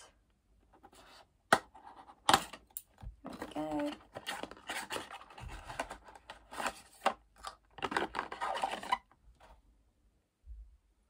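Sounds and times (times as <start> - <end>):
cardboard scratching and rubbing: 3.8 - 7.0.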